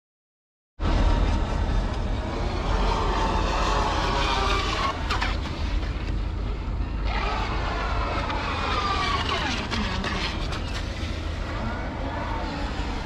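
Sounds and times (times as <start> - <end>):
low rumble: 0.8 - 13.0
electric motor whining: 7.0 - 13.0.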